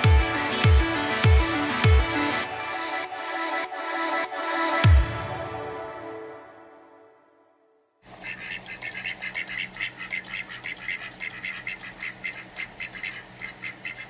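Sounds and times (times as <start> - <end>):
music: 0.0 - 7.8
ducks quacking: 8.1 - 14.0.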